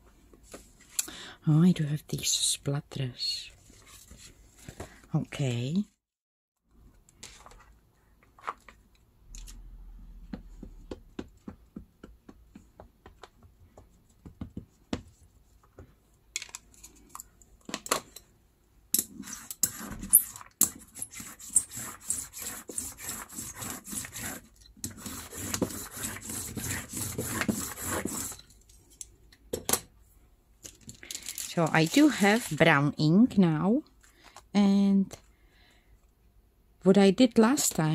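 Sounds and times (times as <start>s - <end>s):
ink pad tapping on silicone: 10.3s - 15.1s.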